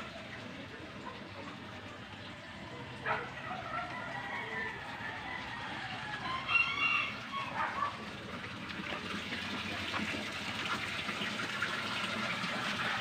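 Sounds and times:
chicken calling: 5.8s - 7.9s.

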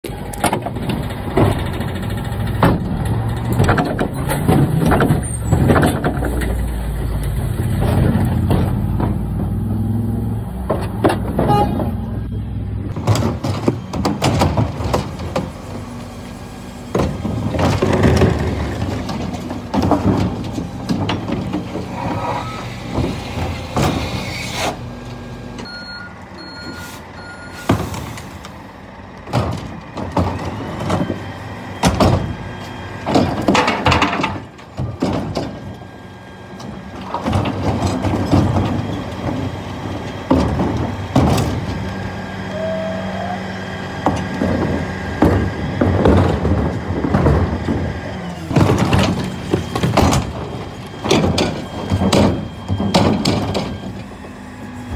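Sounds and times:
truck engine running: 0.0s - 24.2s, 24.8s - 54.9s
bins clanking and banging: 0.2s - 9.7s, 10.6s - 12.1s, 12.9s - 16.0s, 16.8s - 24.2s, 29.2s - 42.1s, 43.9s - 54.6s
short beeps: 25.7s - 27.7s.

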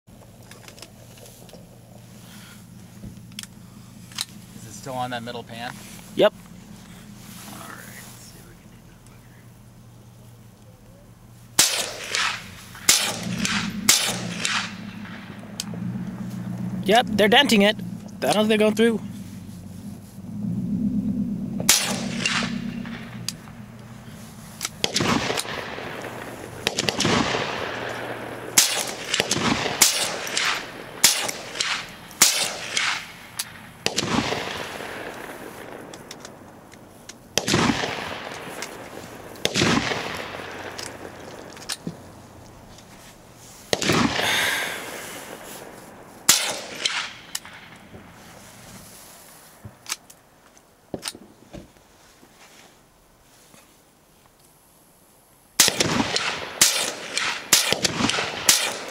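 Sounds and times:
rifle shots: 11.6s - 18.9s, 21.6s - 42.1s, 43.7s - 47.9s, 55.6s - 58.9s.

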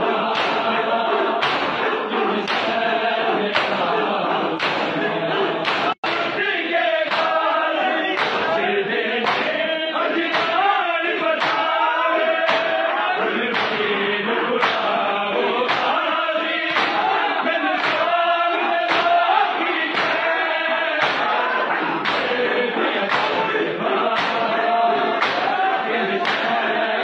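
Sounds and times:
crowd of men chanting: 0.0s - 27.0s
hands slapping chests: 0.3s - 0.8s, 1.4s - 2.8s, 3.5s - 3.9s, 4.6s - 5.0s, 5.6s - 6.4s, 7.1s - 7.4s, 8.2s - 8.6s, 9.2s - 9.6s, 10.3s - 10.6s, 11.4s - 11.7s, 12.4s - 12.8s, 13.5s - 13.9s, 14.6s - 15.0s, 15.7s - 16.0s, 16.7s - 17.2s, 17.8s - 18.2s, 18.8s - 19.2s, 19.9s - 21.4s, 22.0s - 22.4s, 23.0s - 23.5s, 24.1s - 25.6s, 26.2s - 26.6s.

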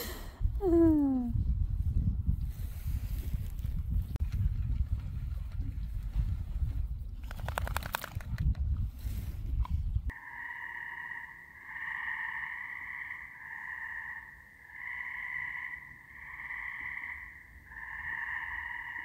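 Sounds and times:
frogs trilling: 10.1s - 19.0s.

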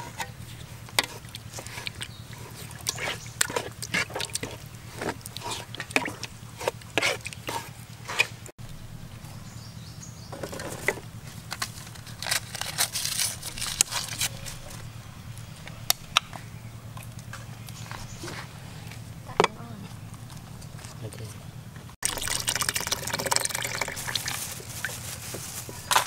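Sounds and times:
liquid pouring into metal pot: 22.0s - 24.4s.

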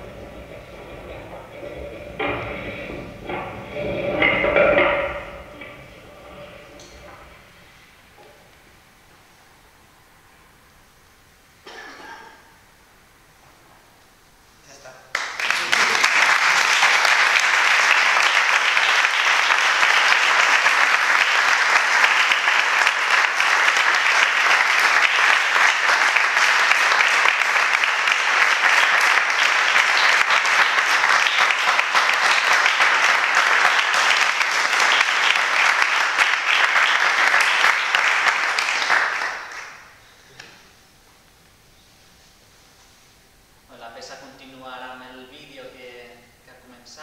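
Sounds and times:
audience applauding: 0.0s - 7.5s, 15.1s - 40.0s.

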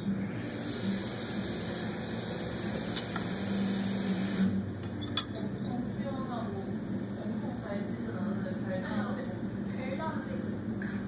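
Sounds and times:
cutlery clinking on plate: 4.8s - 5.4s.

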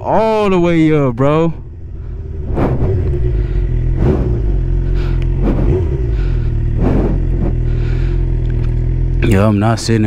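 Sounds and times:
motorcycle engine droning: 0.0s - 10.0s
rushes of noise: 1.6s - 9.0s.

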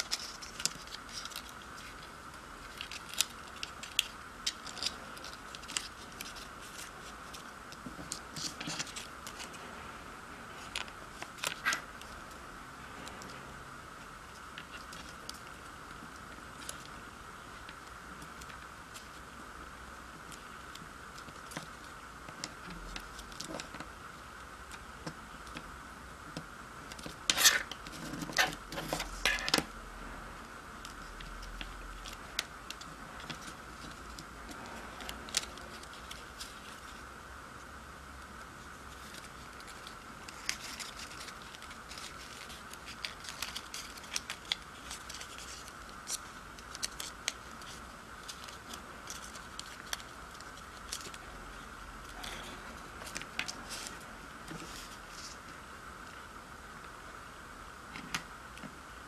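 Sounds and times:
paper being folded and creased: 0.0s - 9.6s, 10.6s - 12.2s, 26.9s - 29.6s, 30.9s - 37.0s, 38.6s - 55.6s
faint steady hiss: 0.0s - 59.0s.

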